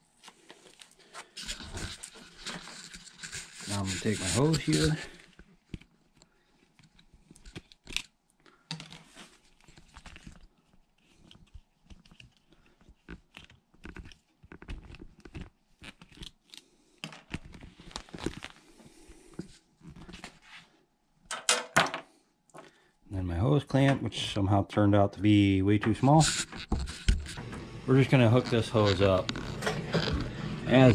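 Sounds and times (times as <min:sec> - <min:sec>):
plastic hose rubbing and clicking: 0:00.3 - 0:08.1, 0:09.0 - 0:16.6, 0:25.8 - 0:30.9.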